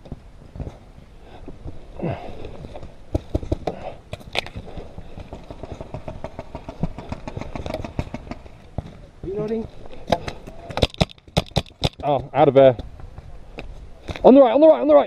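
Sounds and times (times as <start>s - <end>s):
paintball markers firing: 10.1s - 12.2s.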